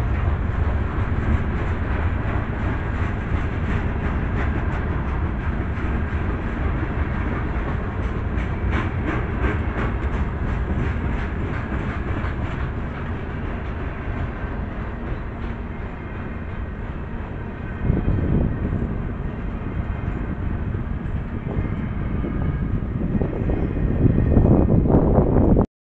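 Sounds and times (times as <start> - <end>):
train cars rolling past: 0.0 - 25.6
wheels clicking over rail joints: 0.1 - 19.0.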